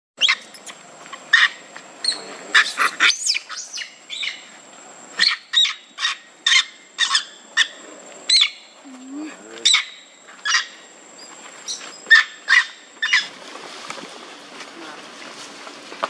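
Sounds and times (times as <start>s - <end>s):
baby monkey squealing: 0.2s - 4.4s.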